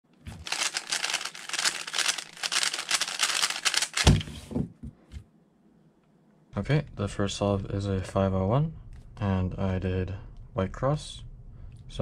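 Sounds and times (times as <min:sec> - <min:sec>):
puzzle cube plastic clacks: 0:00.3 - 0:04.3.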